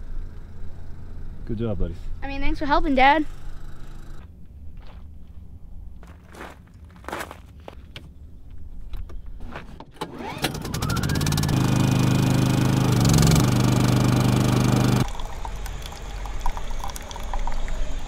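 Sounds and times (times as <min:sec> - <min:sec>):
footsteps on gravel: 0:04.2 - 0:08.7
portable generator engine running: 0:10.0 - 0:18.0.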